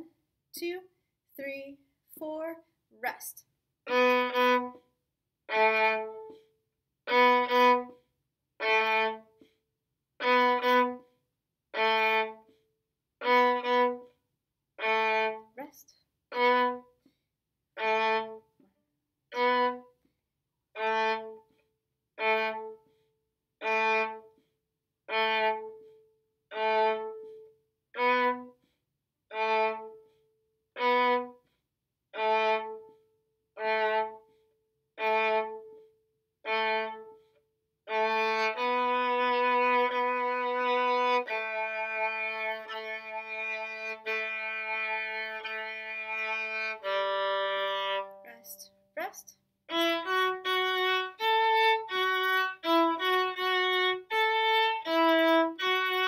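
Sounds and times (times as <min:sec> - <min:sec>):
solo violin bowed: 0:03.9 - 0:04.8, 0:05.5 - 0:06.4, 0:07.0 - 0:08.0, 0:08.6 - 0:09.3, 0:10.2 - 0:11.0, 0:11.7 - 0:12.5, 0:13.2 - 0:14.0, 0:14.8 - 0:15.5, 0:16.3 - 0:16.9, 0:17.8 - 0:18.4, 0:19.3 - 0:19.9, 0:20.8 - 0:21.5, 0:22.2 - 0:22.8, 0:23.6 - 0:24.3, 0:25.1 - 0:25.8, 0:26.5 - 0:27.4, 0:28.0 - 0:28.6, 0:29.3 - 0:30.0, 0:30.8 - 0:31.4, 0:32.1 - 0:32.9, 0:33.6 - 0:34.2, 0:35.0 - 0:35.7, 0:36.4 - 0:37.2, 0:37.9 - 0:48.6, 0:49.7 - 0:56.0.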